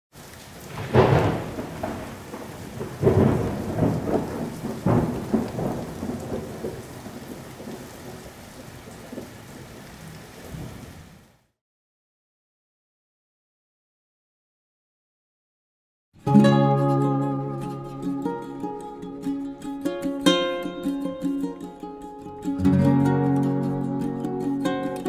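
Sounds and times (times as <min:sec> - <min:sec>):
steady rain: 0:00.1 - 0:11.6, 0:16.2 - 0:25.0
thunder claps rumbling: 0:00.6 - 0:09.8.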